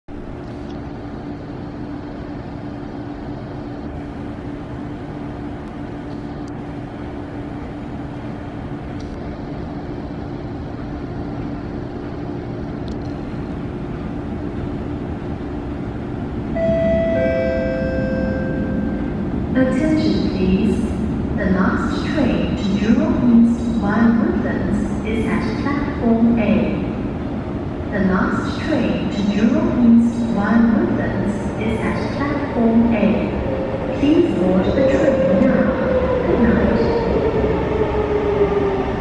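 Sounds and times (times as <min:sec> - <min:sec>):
train rumbling in tunnel: 0:00.0 - 0:39.0
announcement chime: 0:16.6 - 0:19.1.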